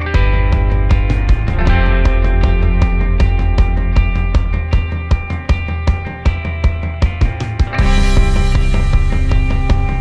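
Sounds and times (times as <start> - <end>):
drum beat: 0.0 - 10.0
held instrumental tones: 0.0 - 10.0.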